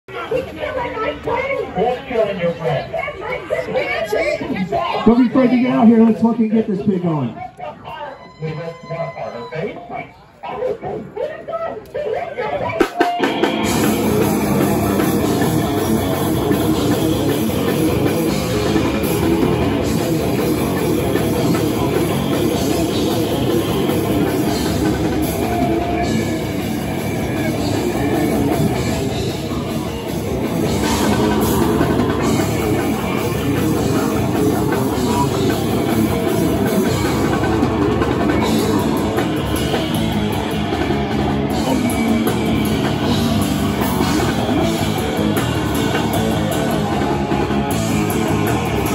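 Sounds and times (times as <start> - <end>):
bass guitar: 12.8 - 48.9
fast drum kit: 12.8 - 48.9
distorted electric guitar: 12.9 - 48.9.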